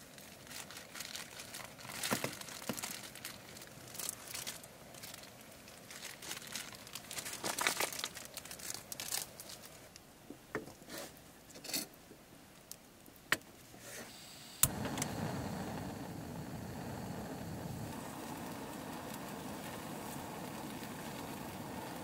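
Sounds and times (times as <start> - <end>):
crinkling and rustling: 0.0 - 11.9.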